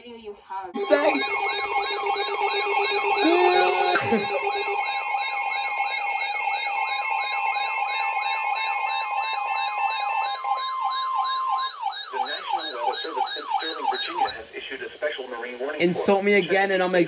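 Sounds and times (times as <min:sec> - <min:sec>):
high warble: 0:00.8 - 0:14.3
beeps: 0:00.8 - 0:14.4
steady warning tone: 0:00.8 - 0:14.4
weather radio alert alarms: 0:00.8 - 0:14.4.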